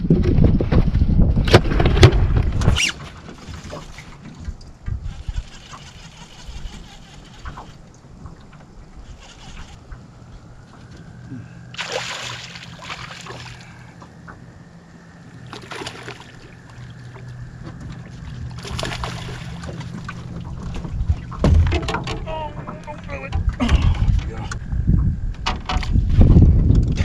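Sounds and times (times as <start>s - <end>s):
low hum: 0.0s - 27.0s
fish splashing at surface: 11.8s - 13.8s.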